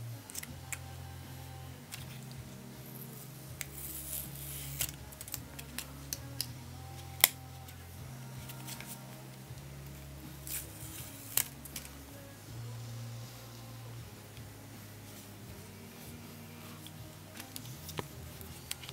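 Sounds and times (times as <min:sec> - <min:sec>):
plastic scratches and clicks: 0:16.8 - 0:18.9.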